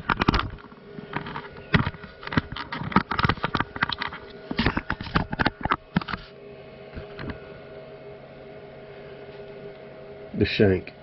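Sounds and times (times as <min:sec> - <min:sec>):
clicks and knocks: 0:00.0 - 0:06.2
milling machine humming: 0:00.0 - 0:11.0.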